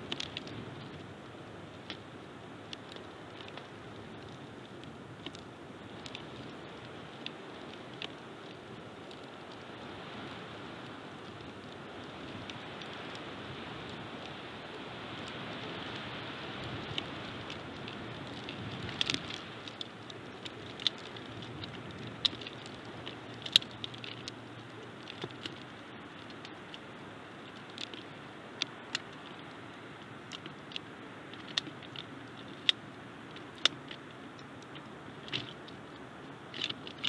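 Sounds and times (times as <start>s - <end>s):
wind noise on microphone: 0.0s - 37.0s.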